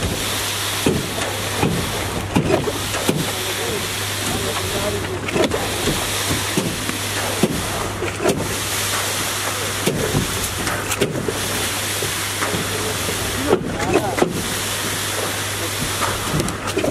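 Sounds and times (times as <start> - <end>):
construction machinery engine hum: 0.0 - 16.9.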